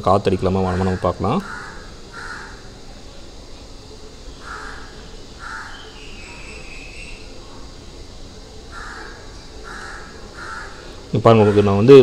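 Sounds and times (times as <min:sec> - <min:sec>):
low steady background noise: 0:00.0 - 0:12.0
crow cawing: 0:00.4 - 0:02.7, 0:04.3 - 0:06.1, 0:08.7 - 0:12.0.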